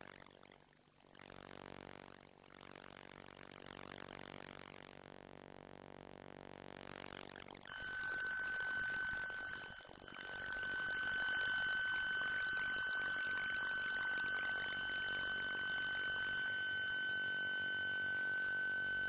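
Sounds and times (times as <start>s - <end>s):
steady high whine: 6.5s - 19.0s
dense electrical buzz: 8.8s - 19.0s.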